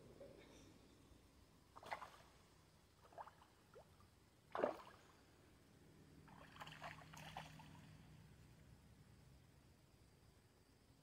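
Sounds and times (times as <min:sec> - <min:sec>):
fish splashing in river: 0:04.5 - 0:05.0.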